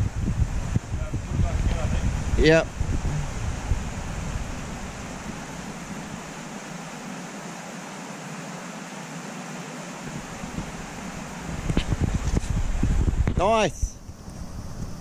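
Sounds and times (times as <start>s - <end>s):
wind rumble on microphone: 0.0s - 6.9s, 10.1s - 15.0s
river running over stones: 2.0s - 15.0s.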